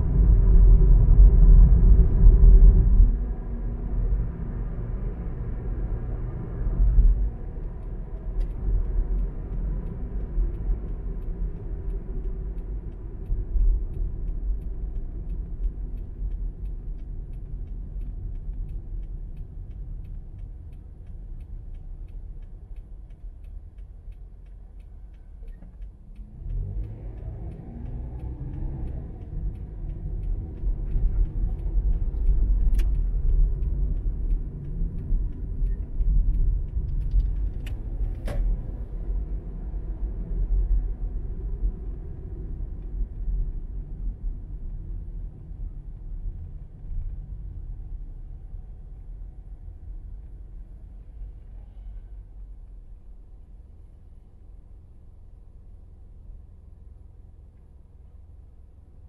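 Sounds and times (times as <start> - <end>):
car engine and road rumble: 0.0 - 59.0
faint regular ticking: 7.7 - 38.0.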